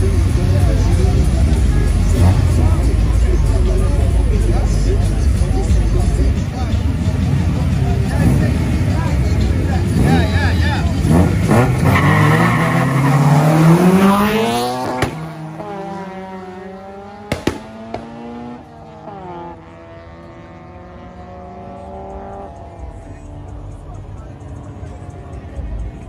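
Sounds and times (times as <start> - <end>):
car engine revving: 0.0 - 26.0.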